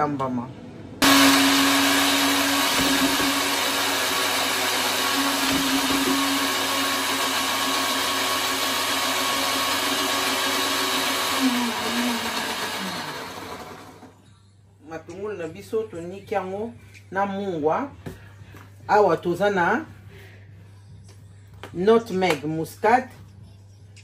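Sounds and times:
blender running: 0:01.0 - 0:14.2.

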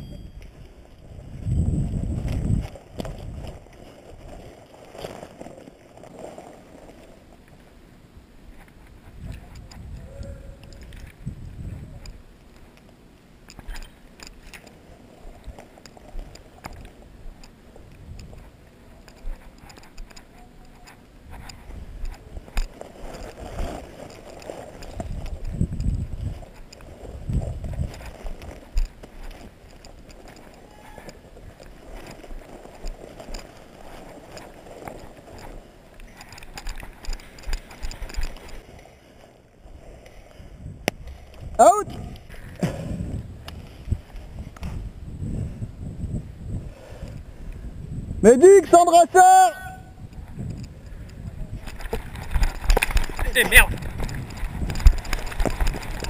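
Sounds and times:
wind thumps on microphone: 0:01.1 - 0:03.6, 0:08.9 - 0:12.2, 0:24.8 - 0:30.1, 0:40.5 - 0:48.3, 0:49.8 - 0:56.0
footsteps: 0:13.5 - 0:45.0
gear clicking and knocking: 0:51.6 - 0:56.0.

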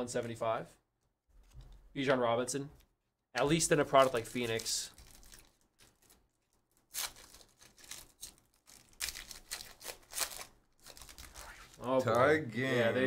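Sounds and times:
wrapper tearing and crinkling: 0:03.9 - 0:12.0.

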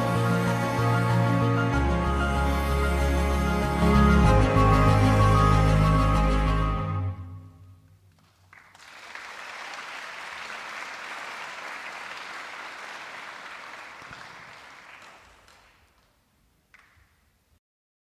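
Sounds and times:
music: 0:00.0 - 0:08.0
audience applauding: 0:08.1 - 0:17.1.

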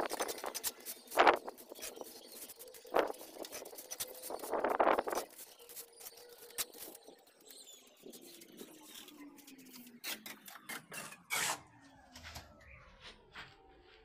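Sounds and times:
trowel scraping wet mortar: 0:00.0 - 0:07.5.

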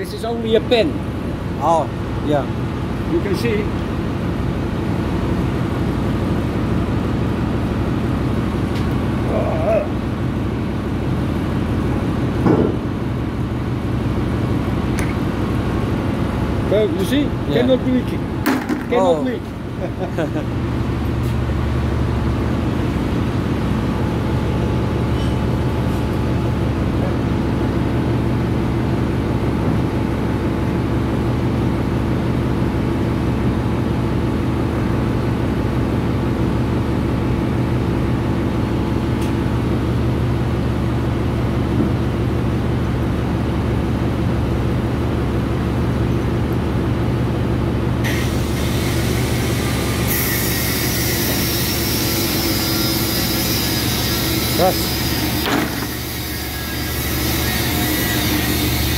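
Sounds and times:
ship engine room machinery drone: 0:00.0 - 0:58.9.

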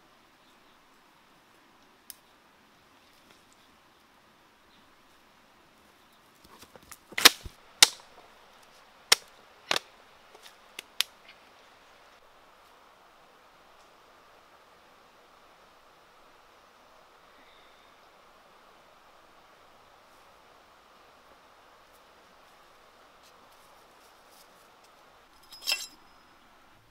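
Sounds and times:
cracks and knocks in undergrowth: 0:06.4 - 0:08.3, 0:09.1 - 0:11.4.

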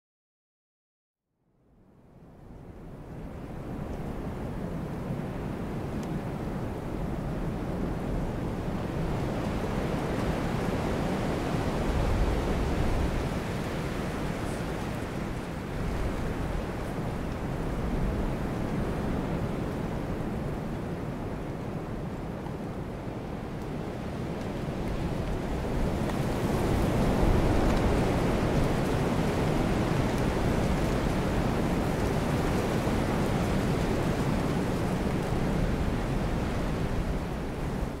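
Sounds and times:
wind over the sea: 0:01.6 - 0:38.0
waves: 0:02.8 - 0:38.0
surf washing: 0:08.4 - 0:20.2, 0:24.0 - 0:38.0.

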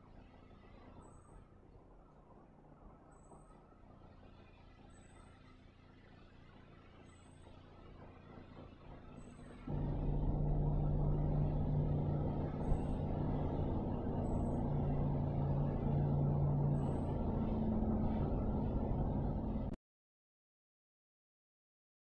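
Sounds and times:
low engine rumble: 0:07.1 - 0:19.8.

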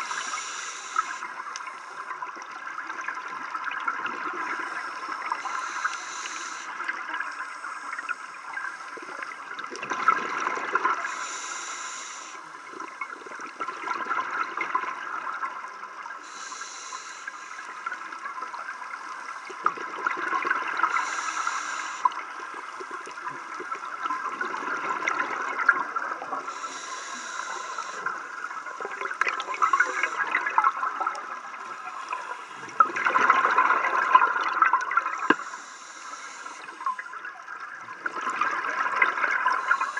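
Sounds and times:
regulator hissing inhalations: 0:00.0 - 0:02.1, 0:04.5 - 0:09.0, 0:11.0 - 0:12.7, 0:16.2 - 0:17.9, 0:20.8 - 0:22.2, 0:26.4 - 0:30.6, 0:35.2 - 0:37.0, 0:39.5 - 0:39.9.

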